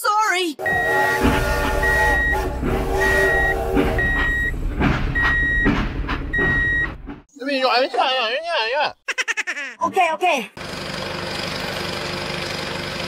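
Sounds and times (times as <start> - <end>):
reversing alarm beeping: 0.6 - 7.0
low engine rumble: 0.6 - 7.2
knocks: 1.2 - 7.3.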